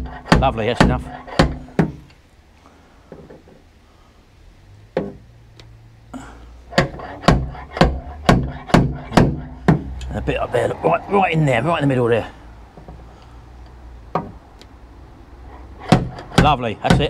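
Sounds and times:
slide hammer knocks: 0:06.7 - 0:10.0, 0:14.1 - 0:14.4
low hum: 0:07.4 - 0:16.3.

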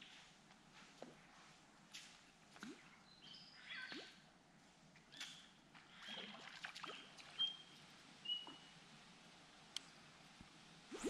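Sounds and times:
birds chirping and whistling: 0:07.3 - 0:07.7.

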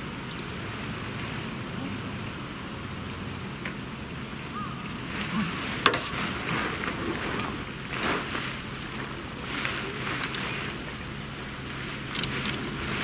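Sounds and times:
nylon tent fabric rustling: 0:04.9 - 0:13.0.

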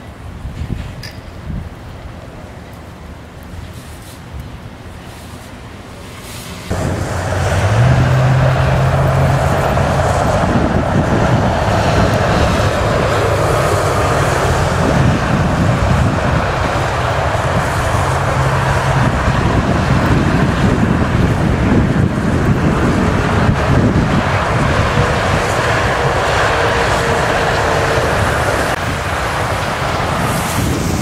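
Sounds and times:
wind buffeting microphone: 0:00.2 - 0:02.2, 0:06.7 - 0:31.0
highway traffic passing: 0:01.5 - 0:31.0
low engine drone: 0:06.7 - 0:31.0.

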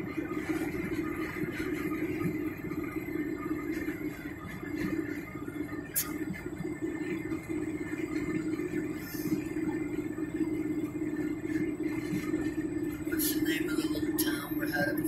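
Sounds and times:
car engine cruising: 0:00.0 - 0:15.0
tyre road noise: 0:00.0 - 0:15.0.

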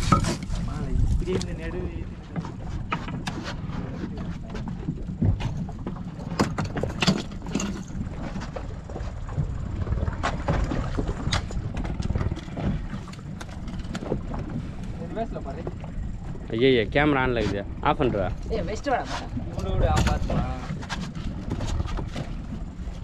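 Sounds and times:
water sloshing: 0:00.0 - 0:23.0
wind rumbling on microphone: 0:00.0 - 0:23.0
knocks against boat: 0:17.5 - 0:22.4.

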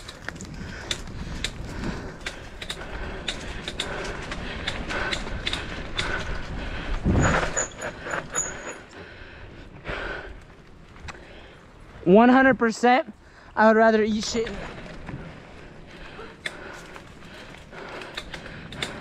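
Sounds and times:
bicycle rattling over dirt: 0:00.0 - 0:09.0, 0:09.9 - 0:12.8, 0:14.0 - 0:19.0
bicycle squeaks: 0:07.1 - 0:09.0.

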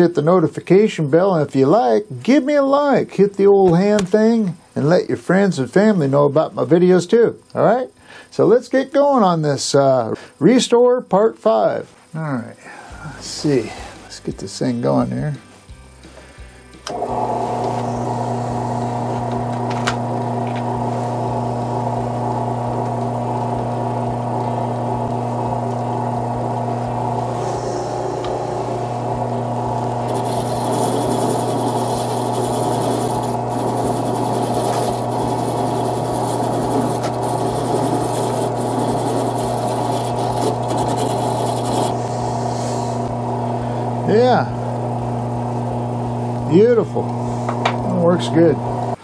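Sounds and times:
drill press motor humming: 0:16.0 - 0:49.0
wire brush scratching screws: 0:30.0 - 0:42.0.

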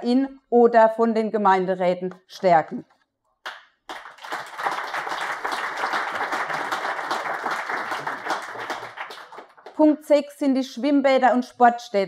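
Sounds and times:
audience applauding: 0:03.5 - 0:09.8.

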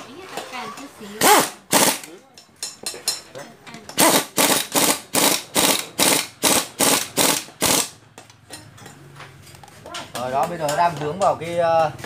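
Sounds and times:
pneumatic impact wrench bursts: 0:01.2 - 0:02.2, 0:04.0 - 0:08.0.

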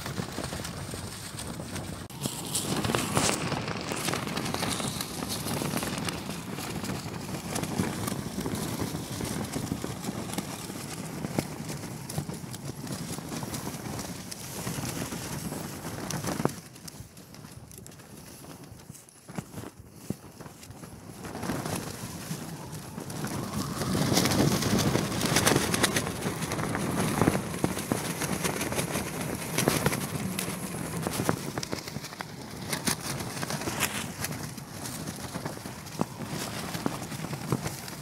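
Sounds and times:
tent fabric flapping in wind: 0:00.0 - 0:38.0.

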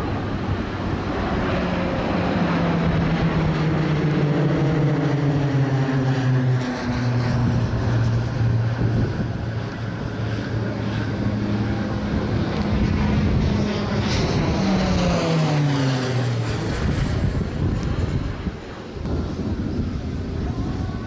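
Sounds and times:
propeller plane droning overhead: 0:00.0 - 0:21.0.

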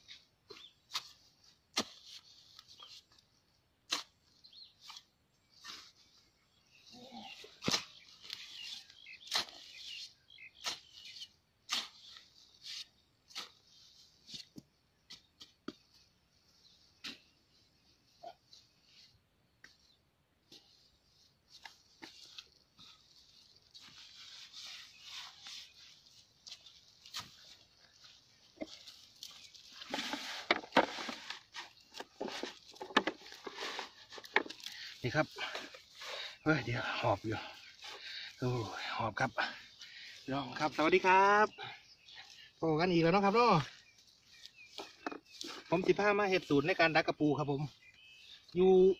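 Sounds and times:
dirt scraping: 0:00.0 - 0:48.9
hoe chopping into damp soil: 0:00.9 - 0:02.2
hands rustling in plastic bucket: 0:20.5 - 0:40.8, 0:41.8 - 0:46.6.

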